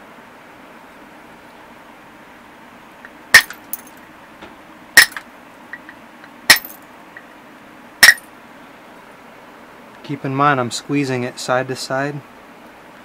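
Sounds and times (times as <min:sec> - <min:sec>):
punch striking stone: 0:03.4 - 0:03.6, 0:08.0 - 0:08.2.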